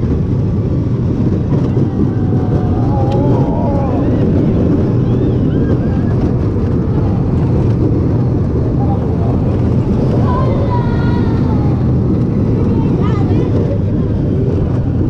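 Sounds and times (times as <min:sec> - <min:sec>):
roller coaster rumbling on track: 0:00.0 - 0:15.0
wind buffeting microphone: 0:00.0 - 0:15.0
children calling out: 0:01.6 - 0:06.4, 0:10.0 - 0:11.8.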